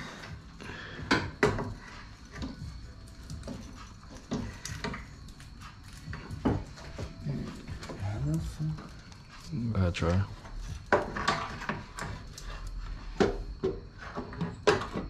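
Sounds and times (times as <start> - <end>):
metal parts knocking and clunking: 10.7 - 12.2.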